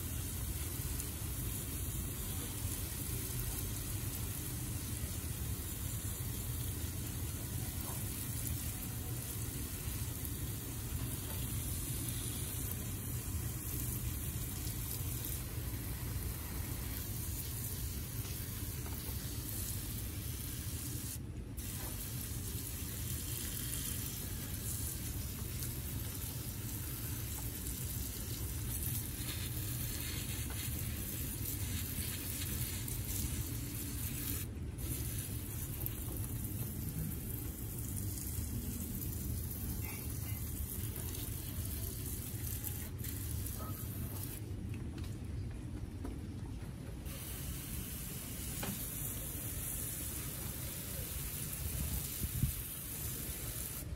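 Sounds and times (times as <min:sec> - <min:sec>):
water spraying from garden hose: 0:00.0 - 0:44.4, 0:47.0 - 0:53.9.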